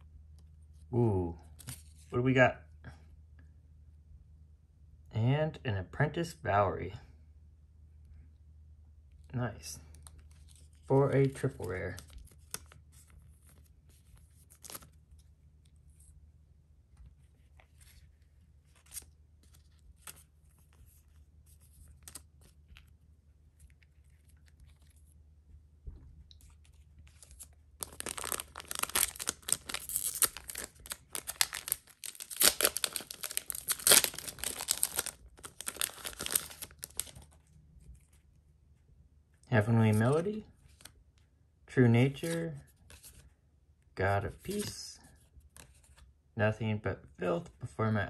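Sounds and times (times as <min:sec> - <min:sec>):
card sleeve clicks and rustles: 0:09.9 - 0:15.3, 0:18.7 - 0:22.9, 0:26.4 - 0:37.4
foil wrapper tearing and crinkling: 0:27.1 - 0:37.3.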